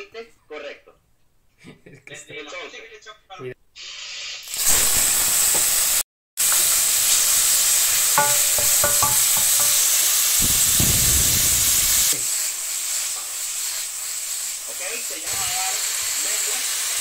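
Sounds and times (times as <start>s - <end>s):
meat sizzling in a wok: 3.8s - 17.0s
wooden spoon stirring: 8.2s - 9.8s.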